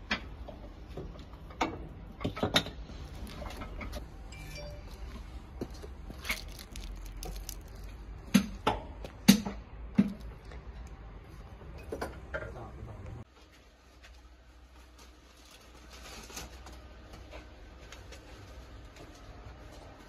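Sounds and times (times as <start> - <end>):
low steady hum: 0.1 - 15.6.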